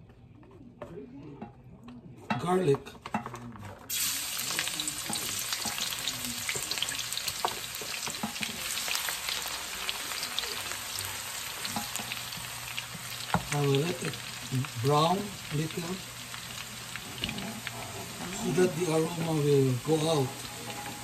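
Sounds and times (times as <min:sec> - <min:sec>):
garlic sizzling in hot oil: 0:03.9 - 0:21.0
wooden spatula stirring: 0:05.0 - 0:21.0.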